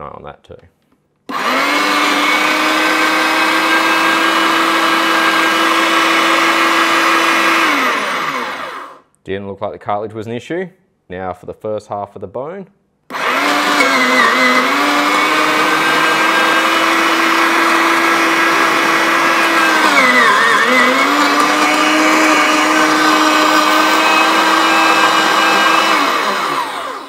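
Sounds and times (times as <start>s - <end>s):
meat mincer motor whine: 1.3s - 9.0s, 13.1s - 27.0s.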